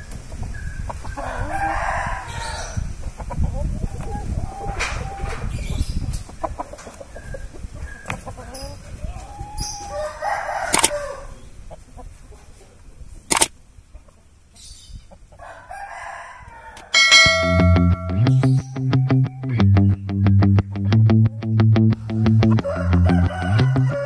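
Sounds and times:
rooster crowing and clucking: 0:00.9 - 0:03.4, 0:06.4 - 0:11.6, 0:15.3 - 0:19.7, 0:22.0 - 0:24.0
sharp clicks: 0:10.7 - 0:10.9, 0:13.3 - 0:13.6
guitar music: 0:17.1 - 0:23.9.

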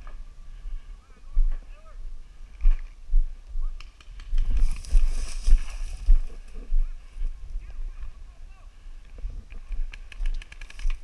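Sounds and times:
footsteps on sandy ground: 0:00.0 - 0:03.4, 0:04.3 - 0:08.2
dry brush rustling and scraping: 0:04.3 - 0:07.3.

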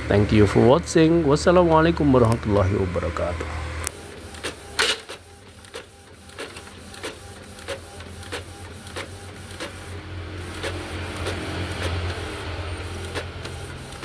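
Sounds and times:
printer motor hum: 0:00.0 - 0:14.0
paper feeding through printer: 0:00.4 - 0:14.0
printer carriage ticking: 0:03.9 - 0:14.0.

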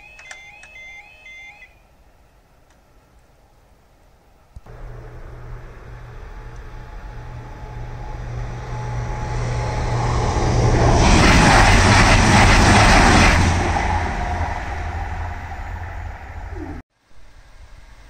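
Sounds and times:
train passing at speed: 0:04.7 - 0:16.8.

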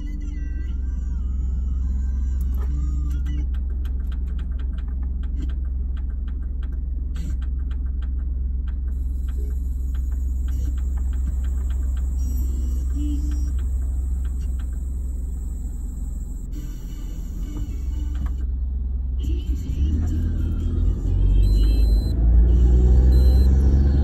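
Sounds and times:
car idling: 0:00.0 - 0:22.1.

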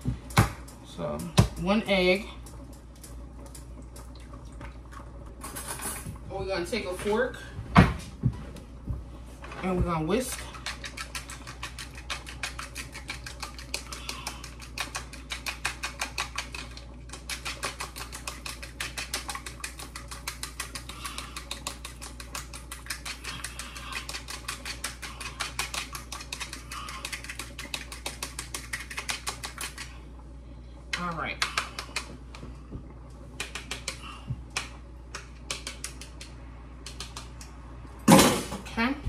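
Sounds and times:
fork beating egg in bowl: 0:10.1 - 0:30.0, 0:33.4 - 0:37.5.

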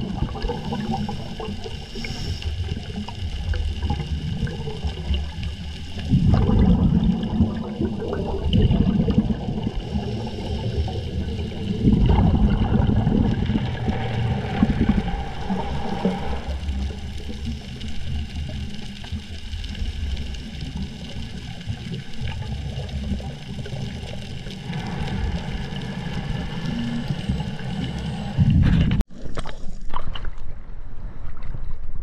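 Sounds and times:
muffled underwater noise: 0:00.0 - 0:29.0
diver's regulator bubbles gurgling: 0:00.0 - 0:32.0.

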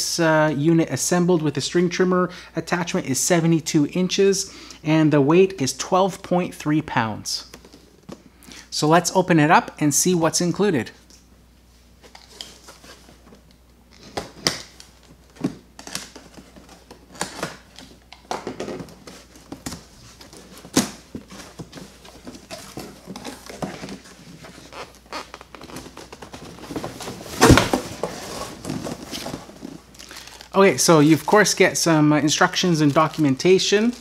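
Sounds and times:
scraping and rustling on cardboard: 0:19.0 - 0:29.8
box lid thump: 0:27.3 - 0:28.2.

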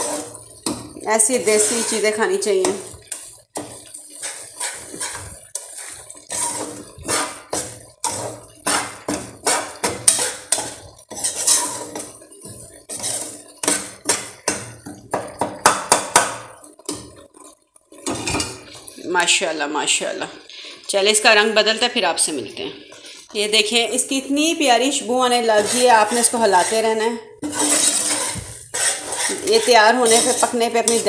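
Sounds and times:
metal spoon scraping steel pot: 0:00.0 - 0:14.9, 0:25.4 - 0:31.0.

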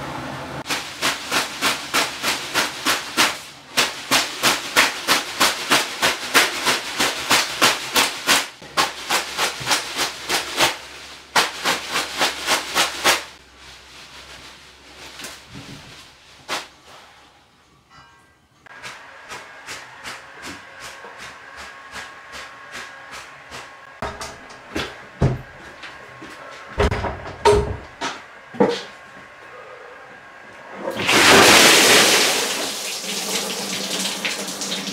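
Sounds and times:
leafy broom swishing and slapping: 0:00.6 - 0:17.2.

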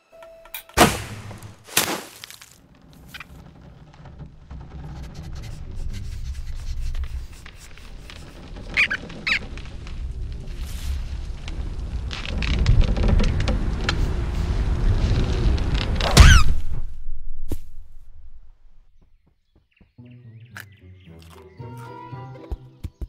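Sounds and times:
sharp hits: 0:00.7 - 0:02.4, 0:16.1 - 0:18.8
low rumble: 0:02.6 - 0:19.0
short high squeaks: 0:05.0 - 0:09.9, 0:16.2 - 0:16.7.

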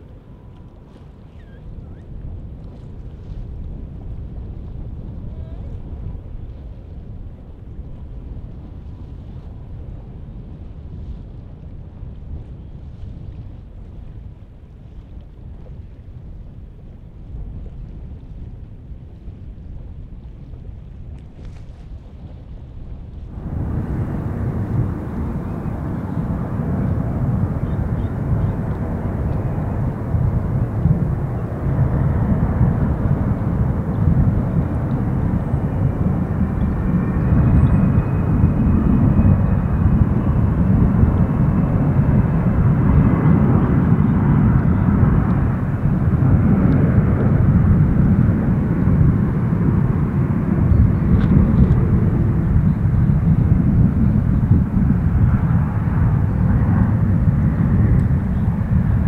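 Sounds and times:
jet airliner engines rumbling: 0:00.0 - 0:10.5, 0:23.2 - 0:59.0.

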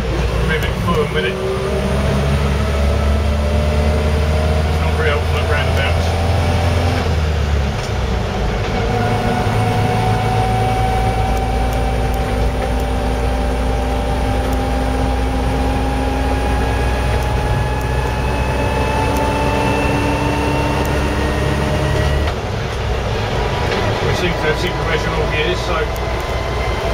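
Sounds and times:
vehicle engine running: 0:00.0 - 0:26.9
thin whine rising in pitch: 0:08.8 - 0:22.3.

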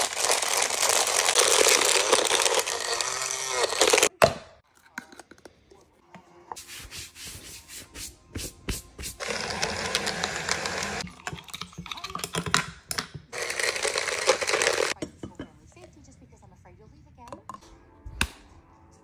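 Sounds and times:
blender motor whirring: 0:00.0 - 0:04.1, 0:09.2 - 0:11.0, 0:13.3 - 0:15.0.

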